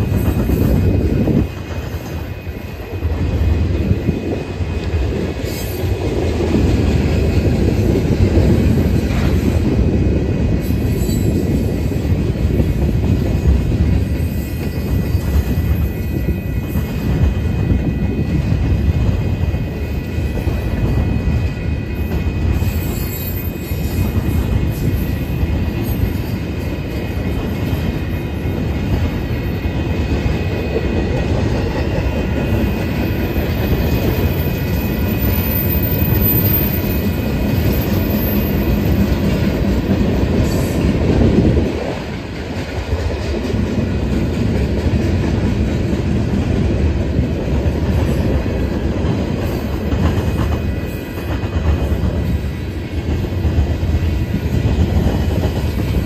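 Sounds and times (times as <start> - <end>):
freight train wheels rumbling: 0.0 - 56.0
high wheel squeal: 21.9 - 24.2, 32.4 - 39.0.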